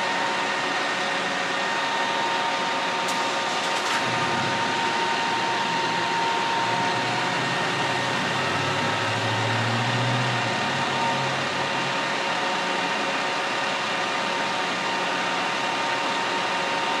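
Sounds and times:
machinery drone with whine: 0.0 - 17.0
low hum: 3.6 - 12.6.

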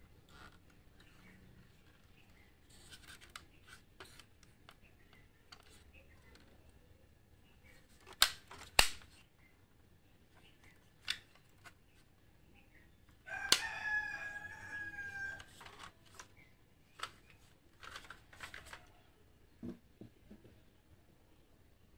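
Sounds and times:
rooster crowing: 13.3 - 15.5.

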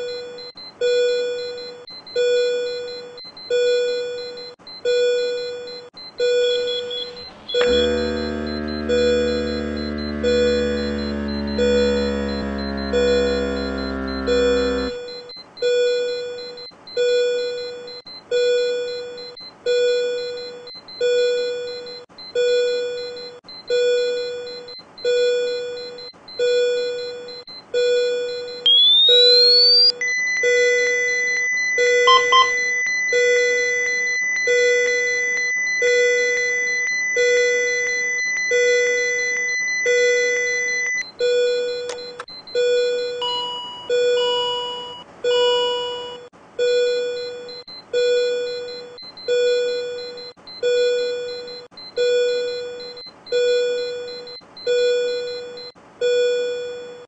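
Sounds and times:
monitor alarm beeping: 6.2 - 15.0, 28.7 - 35.2
high steady charged tone: 6.3 - 15.1, 28.7 - 30.0, 30.8 - 32.9
defibrillator charging whine: 6.5 - 15.2, 28.7 - 29.9, 31.4 - 32.7.

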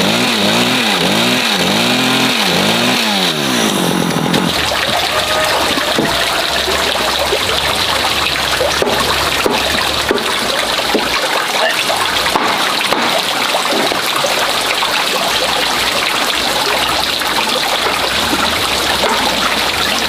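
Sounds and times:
chainsaw revving while cutting: 0.0 - 4.7.

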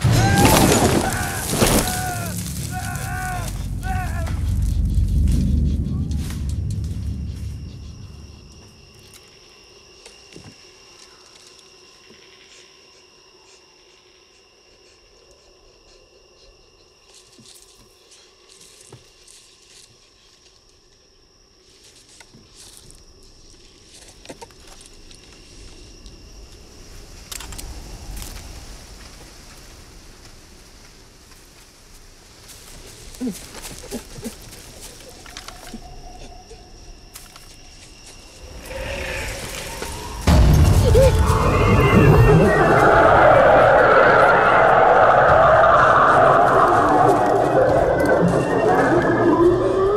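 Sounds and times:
dry leaves rustling: 0.0 - 6.8
night insects chirring: 0.0 - 49.9
low rumble: 1.1 - 9.1, 38.3 - 49.9.

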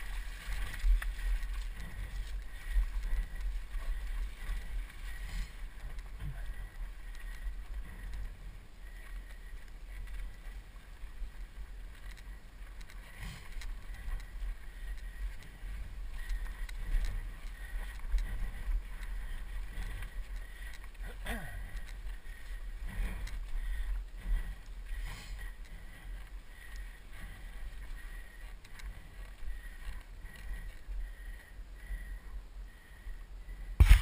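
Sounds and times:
bike knocking and rattling on stones: 0.0 - 8.4, 9.0 - 26.3, 33.8 - 34.0.

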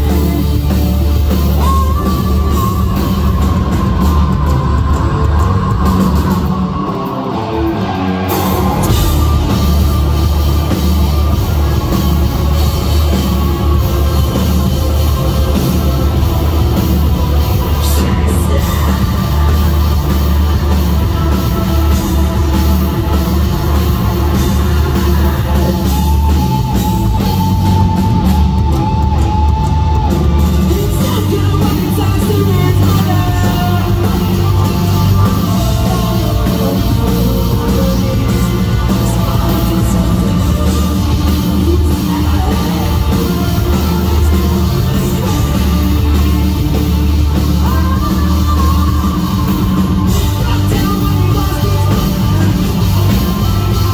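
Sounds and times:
live rock band: 0.0 - 53.9.

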